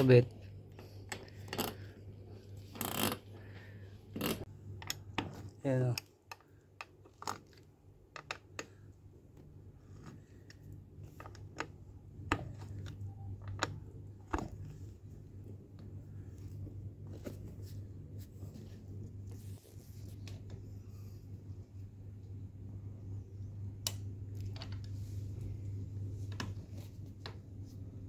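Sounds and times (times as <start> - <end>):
low hum: 11.8 - 28.0.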